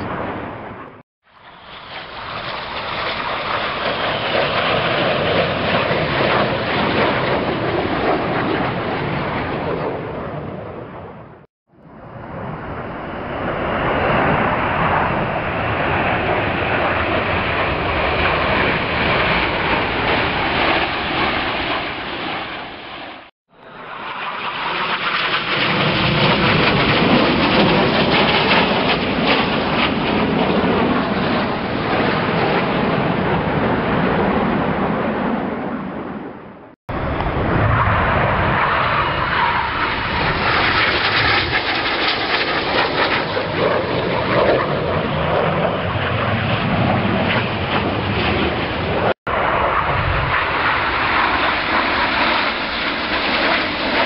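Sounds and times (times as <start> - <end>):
jets flying past: 0.0 - 54.0.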